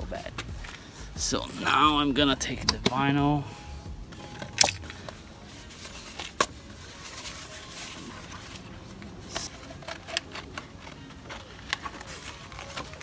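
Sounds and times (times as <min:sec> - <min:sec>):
vinyl film crinkling and clicking: 0:04.1 - 0:13.0.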